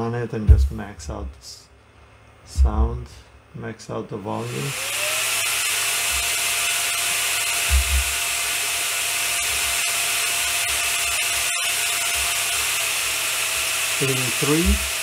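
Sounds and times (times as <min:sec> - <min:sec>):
blower whine: 0:04.4 - 0:15.0.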